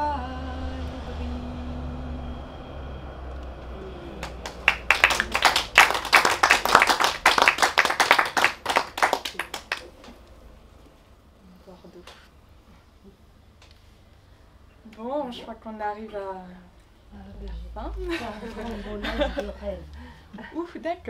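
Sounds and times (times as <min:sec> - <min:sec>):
audience clapping: 0:04.2 - 0:10.2.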